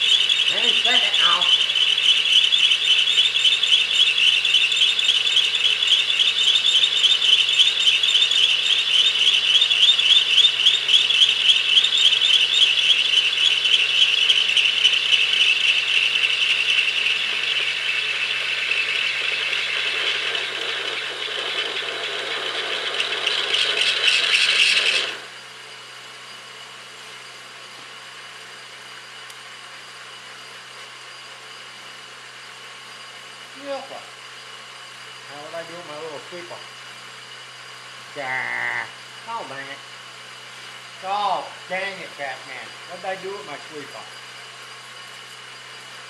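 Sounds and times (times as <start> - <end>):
drill bit squealing in metal: 0.0 - 25.4
lathe running quietly: 0.0 - 46.0.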